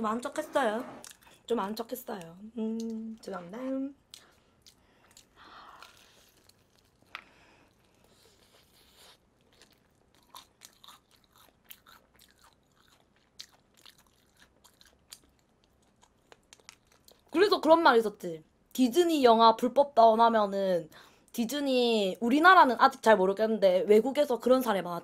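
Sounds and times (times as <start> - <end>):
chewing crispy fried chicken: 4.1 - 17.4.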